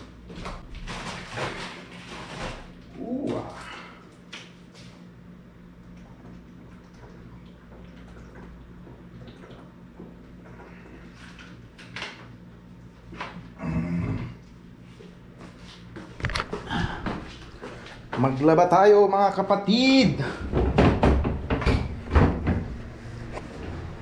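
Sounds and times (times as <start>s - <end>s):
low room hum: 0.0s - 24.0s
person swallowing: 13.5s - 14.5s, 16.3s - 17.4s.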